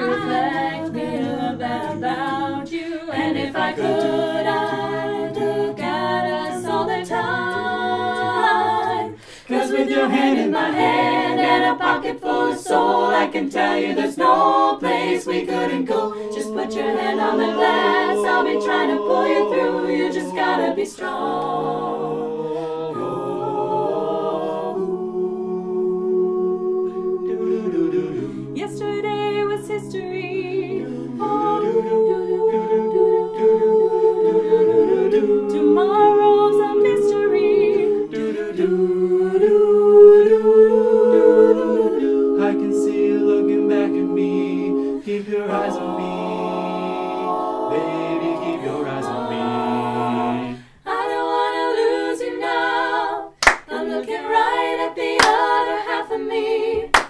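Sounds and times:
a cappella group singing: 0.0s - 57.0s
hand claps: 53.4s - 53.7s, 55.2s - 55.4s.

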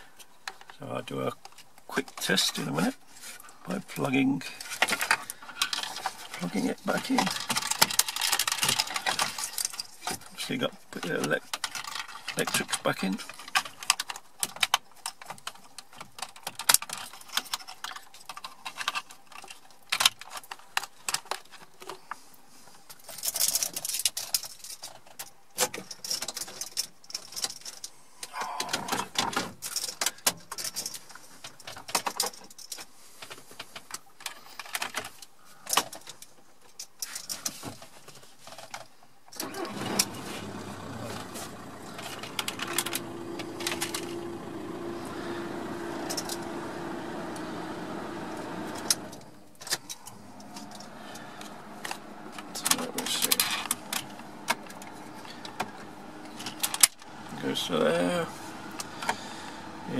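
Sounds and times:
plastic connectors clicking and rattling: 4.6s - 22.1s, 22.9s - 39.4s, 41.2s - 47.6s, 48.8s - 59.2s
blower rushing with low hum: 39.4s - 59.9s.

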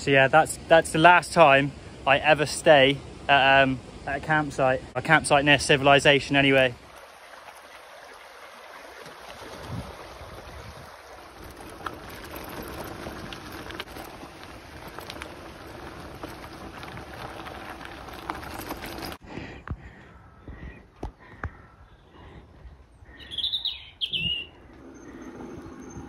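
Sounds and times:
wind and bike tyre noise: 0.0s - 26.0s
bird chirps: 23.1s - 26.0s.

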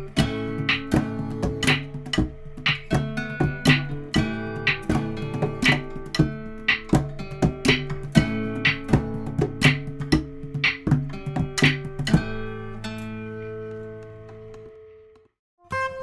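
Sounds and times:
guitar chords strummed: 0.0s - 14.9s.

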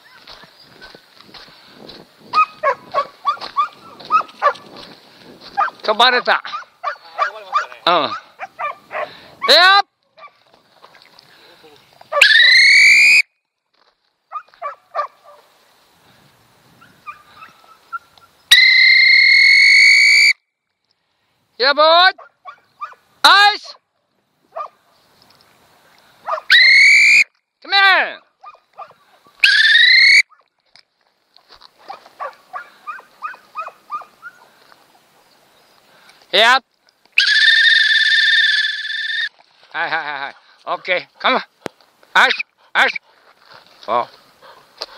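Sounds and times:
dog-training whistle blasts: 12.2s - 13.3s, 18.5s - 20.4s, 26.5s - 27.3s
short animal calls: 28.4s - 30.4s, 37.2s - 39.3s
dog whining in short yelps: 32.9s - 34.4s.

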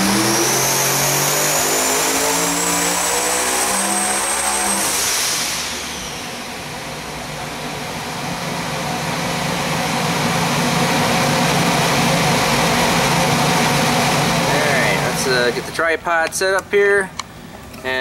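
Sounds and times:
engine idling: 5.6s - 18.0s.

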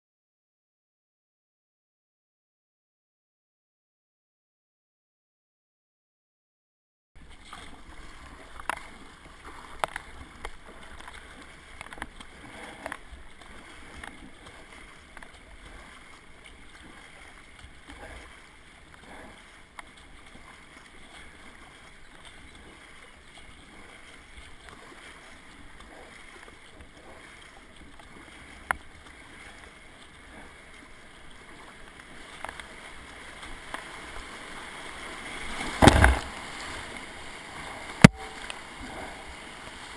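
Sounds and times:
paddle strokes splashing: 7.2s - 39.9s
river current rushing: 34.0s - 39.9s.

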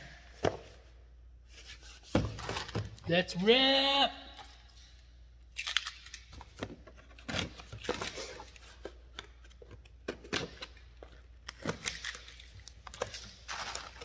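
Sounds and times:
packaging crinkling and rustling: 10.4s - 14.0s.

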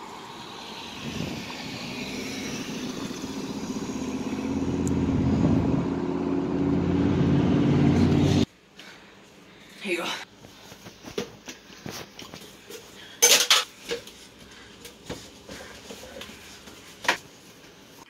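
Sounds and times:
traffic noise: 0.0s - 8.5s
vehicle engine approaching: 0.0s - 8.5s.

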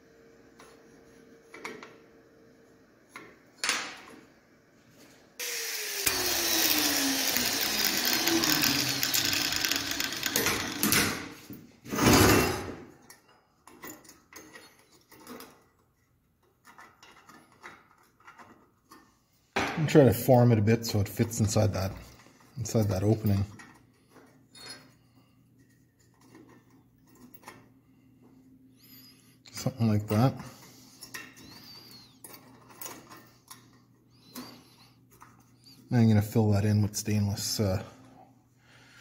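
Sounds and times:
power tool cutting metal: 5.4s - 11.2s.

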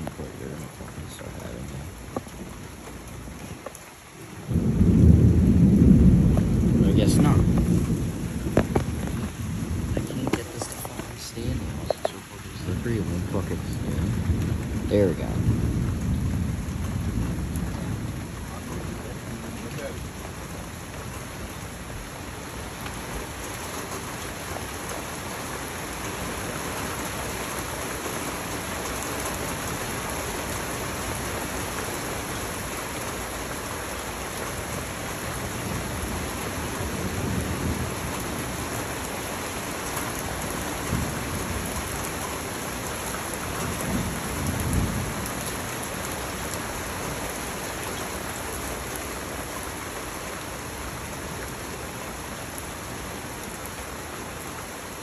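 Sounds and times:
steady rain pouring: 0.0s - 55.0s
low rumbles of thunder: 4.4s - 22.1s, 34.6s - 47.4s.

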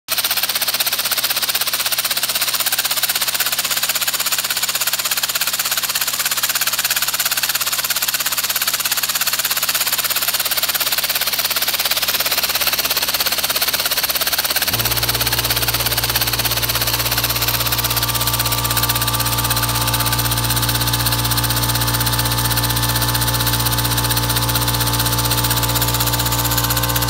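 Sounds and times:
engine mechanical clatter: 0.1s - 27.0s
air engine pulsing exhaust hiss: 14.0s - 27.0s.

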